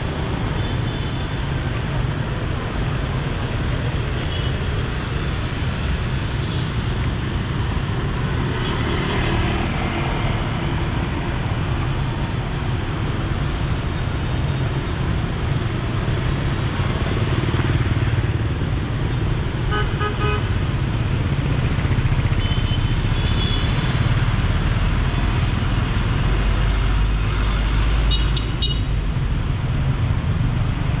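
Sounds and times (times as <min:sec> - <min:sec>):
traffic passing: 0:00.0 - 0:31.0.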